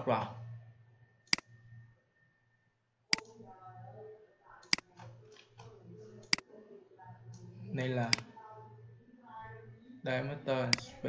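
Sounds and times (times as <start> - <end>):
faint low talk: 0.0 - 0.7, 3.1 - 11.0
computer mouse button clicking: 4.6 - 5.2, 8.1 - 8.3.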